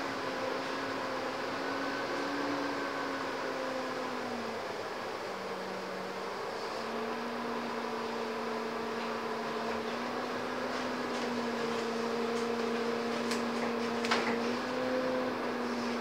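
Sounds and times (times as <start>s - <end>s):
bus engine hum with whine: 0.0s - 16.0s.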